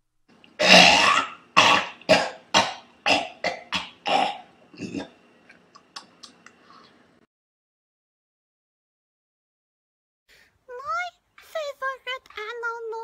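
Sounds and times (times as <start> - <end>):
person making cough-like grunts: 0.6 - 5.1.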